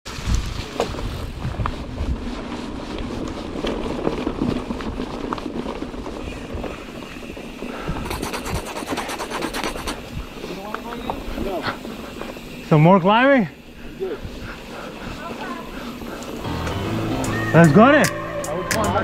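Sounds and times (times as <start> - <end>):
bike rattles and knocks: 0.1 - 8.0
wind rumble on microphone: 0.1 - 10.5
bike tyres on dirt trail: 0.1 - 18.7
fast even ticking: 8.0 - 10.0.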